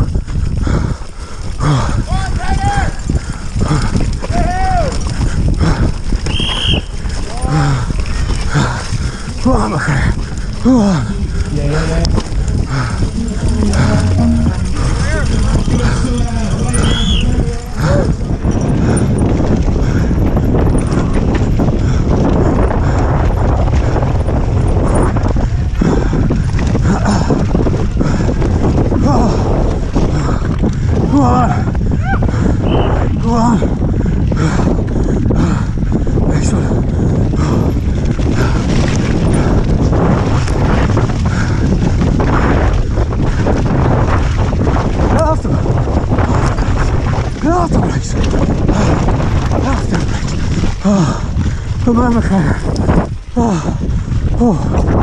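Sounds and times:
wind rumble on microphone: 0.0s - 55.0s
bike chain and frame clattering: 1.2s - 31.1s, 36.8s - 43.4s.

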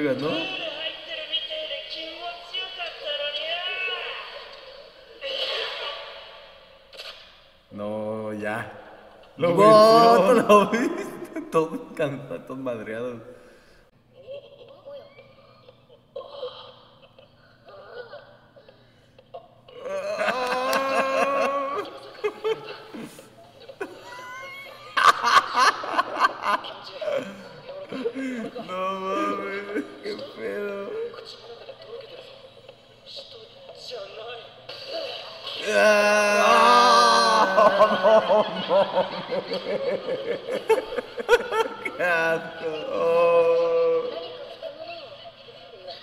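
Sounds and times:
person laughing: 19.7s - 31.2s, 35.6s - 44.3s.

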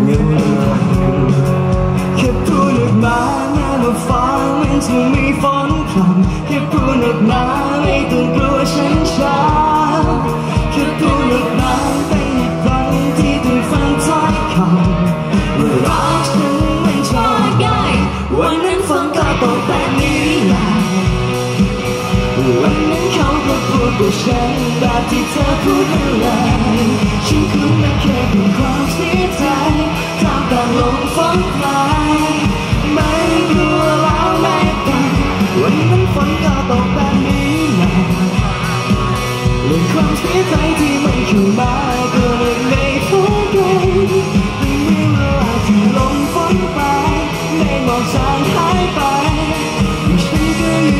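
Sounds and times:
bass and steady beat: 0.0s - 50.9s
people singing into microphones: 0.0s - 50.9s.

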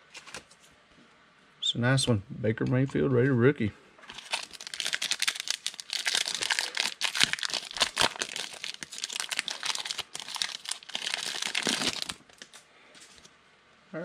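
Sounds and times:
foil wrapper tearing and crinkling: 4.1s - 12.6s.

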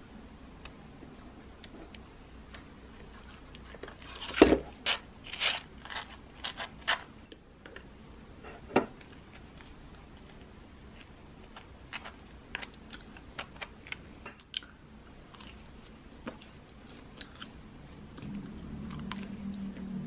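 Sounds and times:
knife scraping butter on toast: 4.9s - 7.1s.

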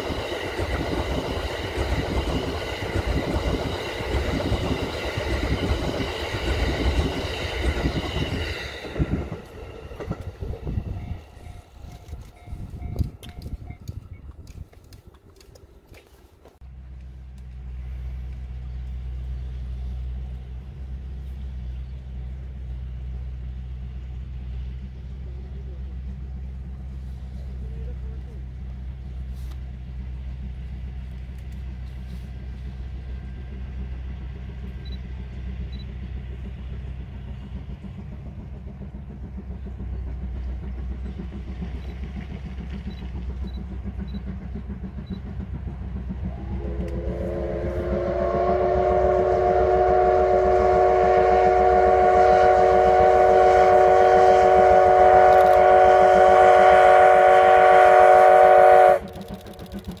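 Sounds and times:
train rumble: 0.0s - 60.0s
steam locomotive whistle: 46.2s - 60.0s.

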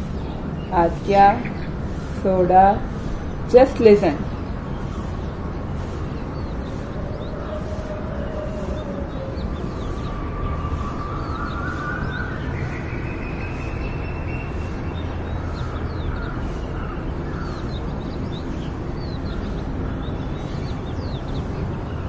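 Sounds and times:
faint high pulsing hiss: 0.0s - 14.9s
steady low rumble: 0.0s - 22.0s
bird chirps: 2.8s - 22.0s
rising whine: 4.7s - 15.3s.

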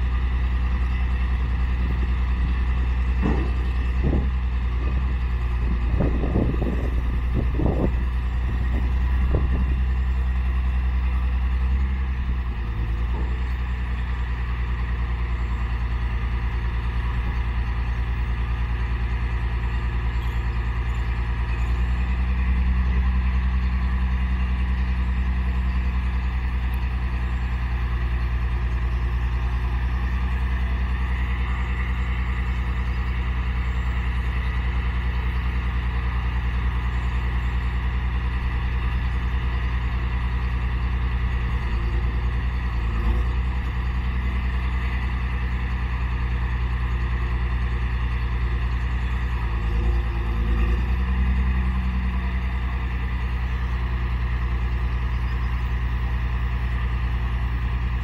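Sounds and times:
diesel truck engine idling: 0.0s - 58.0s
hydraulics lowering dump body: 0.0s - 58.0s
brief bump: 3.2s - 4.4s.

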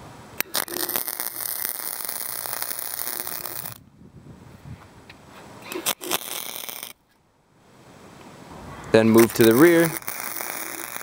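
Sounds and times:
welder arc crackling: 0.4s - 3.8s, 5.7s - 7.0s, 9.1s - 11.0s.

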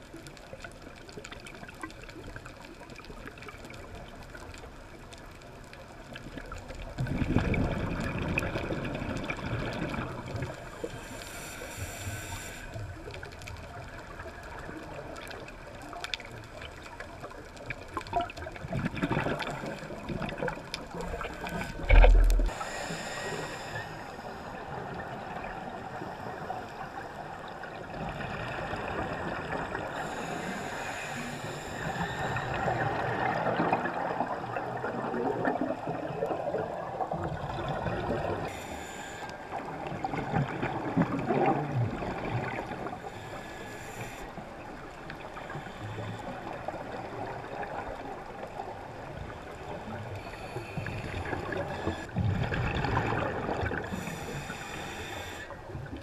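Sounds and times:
air bubbles gurgling: 6.9s - 10.7s, 17.7s - 22.6s, 32.6s - 38.5s, 39.7s - 42.9s, 50.9s - 54.0s
scuba regulator breathing underwater: 9.9s - 13.2s, 19.0s - 25.1s, 28.1s - 34.2s, 38.0s - 40.1s, 41.4s - 47.4s, 49.8s - 56.0s.

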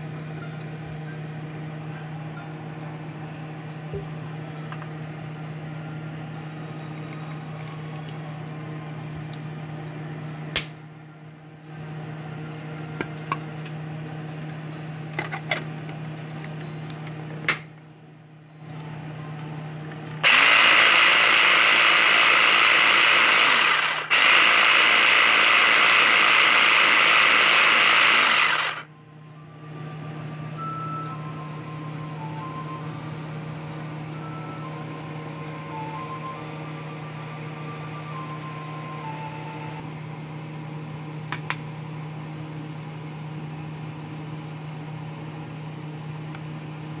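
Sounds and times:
food processor motor running: 20.2s - 28.9s.

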